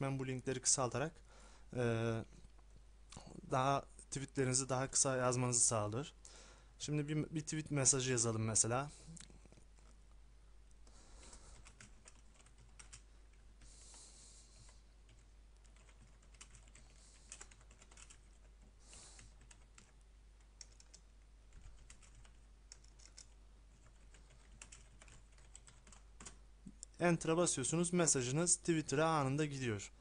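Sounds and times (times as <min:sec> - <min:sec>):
faint keyboard typing: 0:10.8 - 0:27.0.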